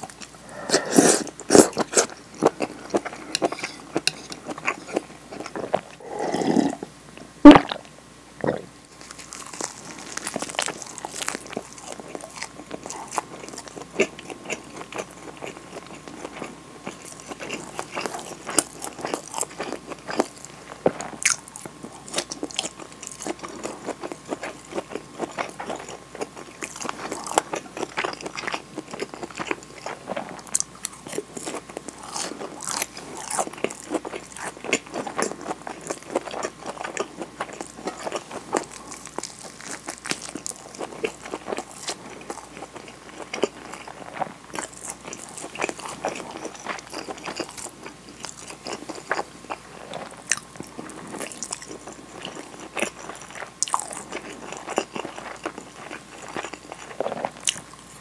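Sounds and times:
slurping soup: 0.4 - 2.1, 6.0 - 6.9
chewing with wet clicks: 9.1 - 20.4, 21.0 - 57.9.

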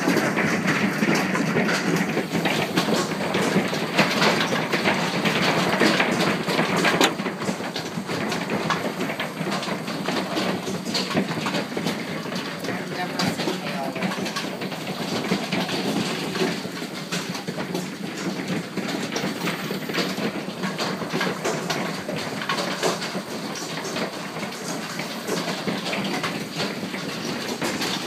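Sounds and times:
hailstones pelting down: 0.0 - 28.0.

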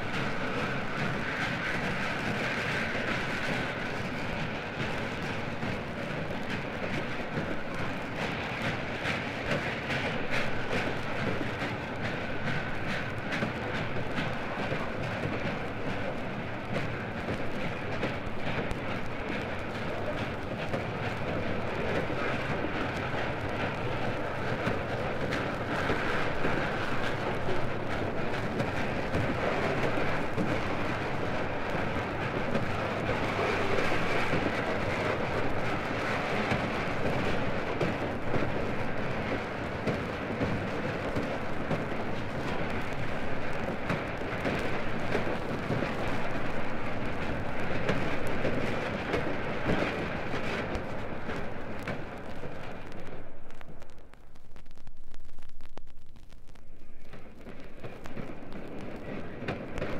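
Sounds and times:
steam locomotive running: 0.0 - 53.9, 56.8 - 59.9.

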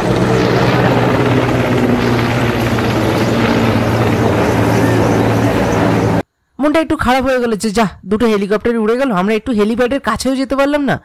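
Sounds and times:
helicopter drone overhead: 0.0 - 6.2.

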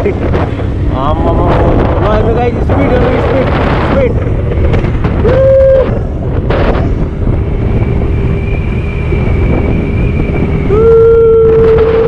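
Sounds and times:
motorcycle engine running: 0.0 - 10.8
wind rushing over microphone: 0.0 - 12.0
loud steady tone: 2.8 - 12.0.

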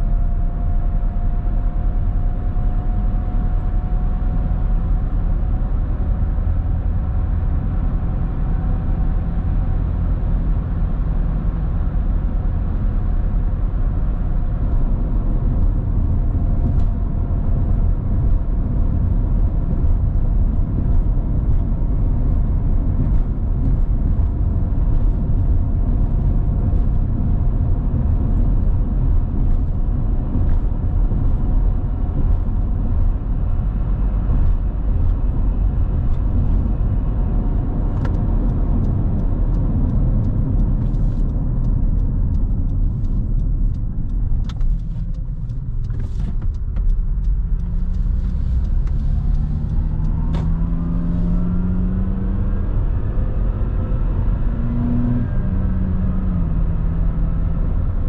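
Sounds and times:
road and engine rumble: 0.0 - 58.0
vehicle accelerating through gears: 46.2 - 58.0.

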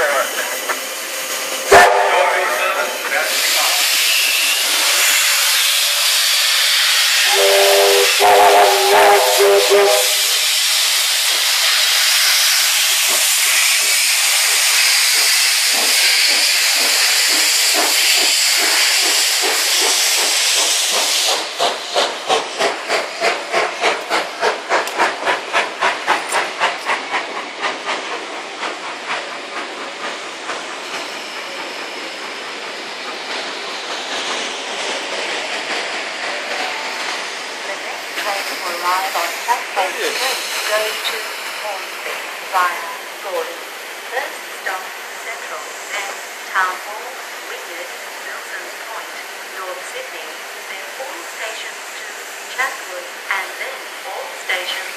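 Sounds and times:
locomotive chuffing: 0.0 - 47.4
steam hissing: 0.0 - 54.9
steam whistle chord: 1.7 - 2.5, 7.3 - 10.3.

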